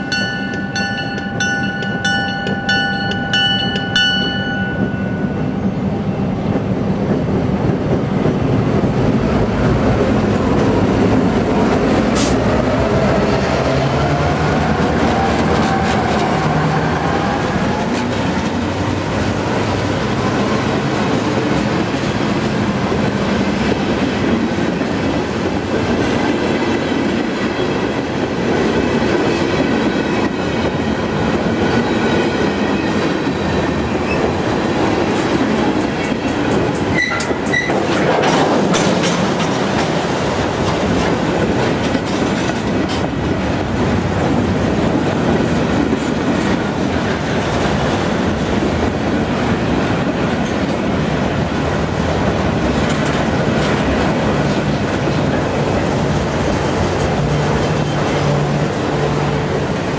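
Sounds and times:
train wheels rumbling on rail: 0.0s - 59.9s
wheels clacking over rail joints: 13.2s - 59.9s.

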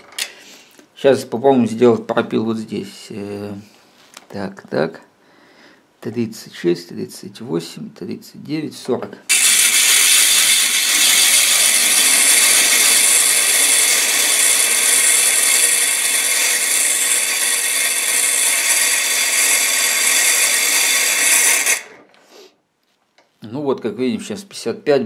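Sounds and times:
abrasive disc grinding steel: 9.3s - 22.2s.

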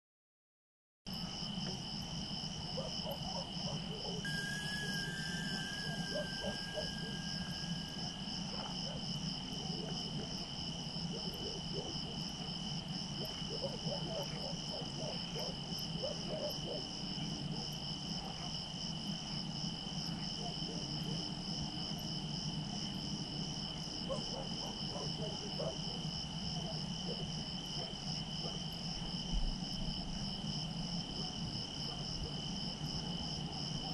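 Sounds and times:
steady low hum: 1.1s - 11.4s
crickets chirping: 1.1s - 33.9s.

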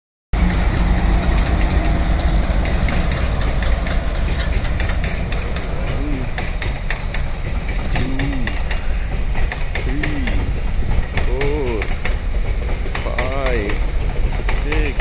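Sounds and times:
diesel locomotive engines humming: 0.4s - 15.0s
train wheels clicking over rail joints: 0.4s - 15.0s.

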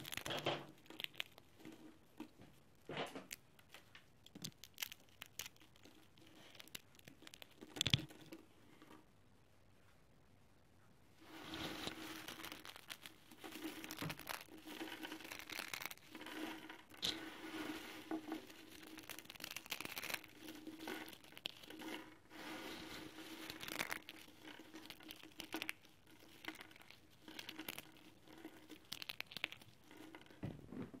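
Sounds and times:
dry noodles crunching: 0.0s - 1.6s, 4.2s - 8.2s, 11.5s - 22.4s, 23.0s - 30.4s.

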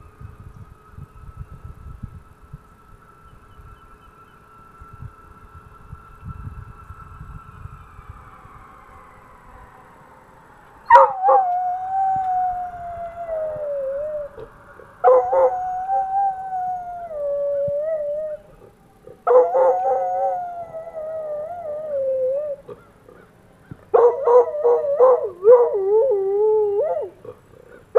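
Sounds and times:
dog howling: 10.8s - 23.3s, 23.9s - 27.9s.

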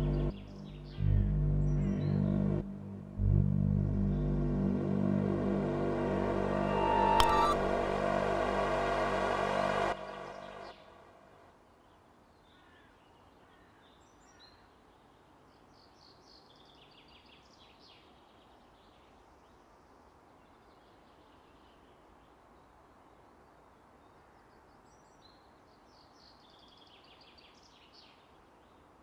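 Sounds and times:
birds chirping: 0.0s - 2.6s
music: 0.0s - 11.0s.

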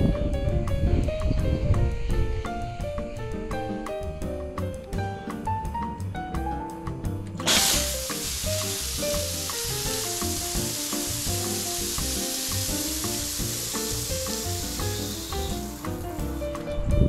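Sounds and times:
light background music: 0.0s - 17.0s
shower spraying water: 7.4s - 16.5s.

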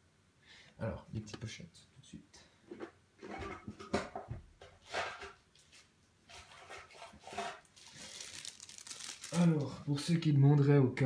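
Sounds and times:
plastic card sleeves rustling: 7.7s - 9.8s.

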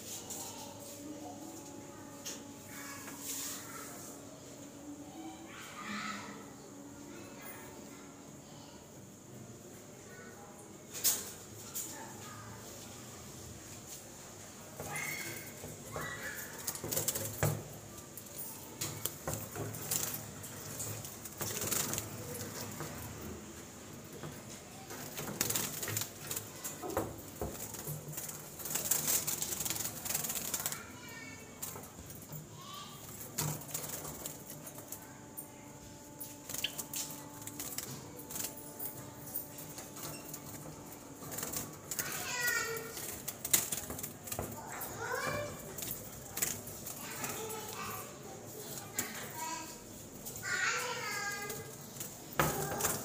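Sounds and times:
wire cages rattling: 13.8s - 53.0s.

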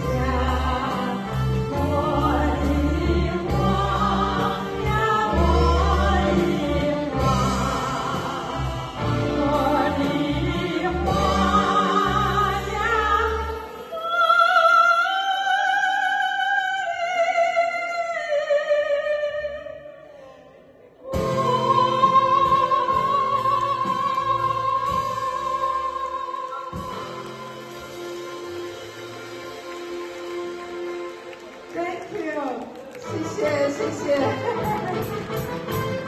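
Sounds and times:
live band playing: 0.0s - 13.9s, 21.1s - 36.0s
woman and man singing duet: 0.0s - 19.8s, 21.0s - 27.9s.

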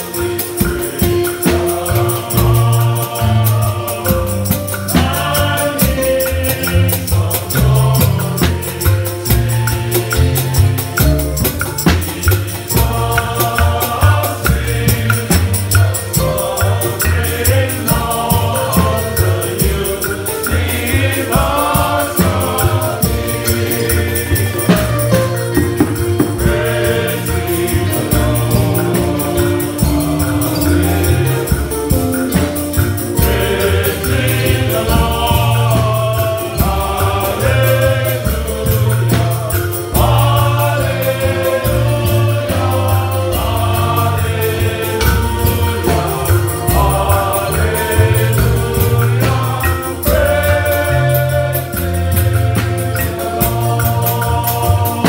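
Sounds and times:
hand drums: 0.0s - 55.0s
men's choir singing a hymn: 0.0s - 55.0s.

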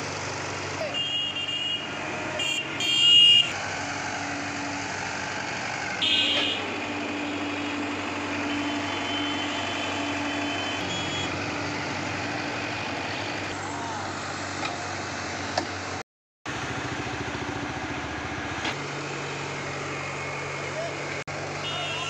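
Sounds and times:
excavator diesel engine running: 0.0s - 22.0s
horn sounding: 0.8s - 3.6s, 6.0s - 11.4s, 21.6s - 22.0s.

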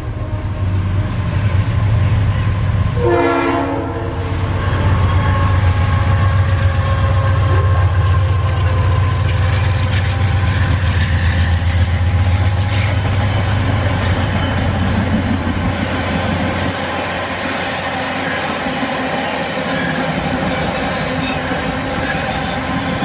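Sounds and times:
train rumble: 0.0s - 23.0s
train horn blast: 2.9s - 10.4s
train wheels clattering on rails: 4.2s - 23.0s.

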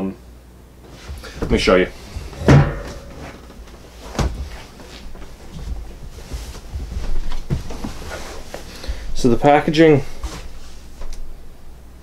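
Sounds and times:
soft rustling: 0.9s - 11.2s
loud bump: 2.1s - 3.7s.

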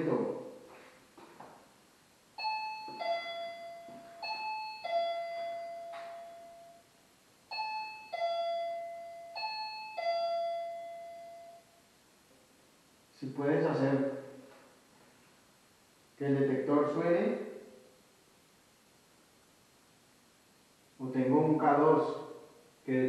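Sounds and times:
electronic two-tone alarm chime: 2.4s - 6.9s, 7.5s - 11.8s.

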